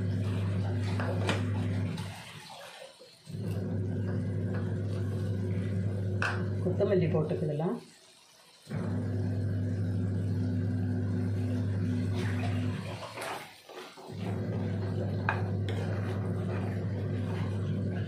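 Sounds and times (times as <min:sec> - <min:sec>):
spatula stirring thick gravy: 0:12.9 - 0:18.0
steady low hum: 0:14.1 - 0:18.0.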